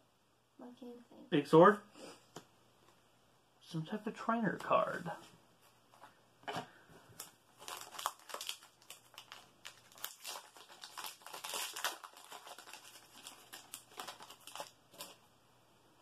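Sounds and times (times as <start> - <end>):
foil wrapper crinkling: 7.2 - 15.2.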